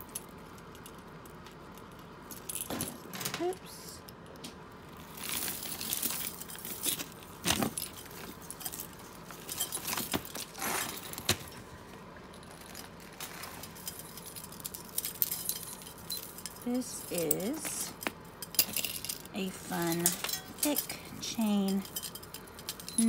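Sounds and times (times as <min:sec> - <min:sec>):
metal jewelry jangling: 0:05.0 - 0:11.2, 0:12.4 - 0:23.0.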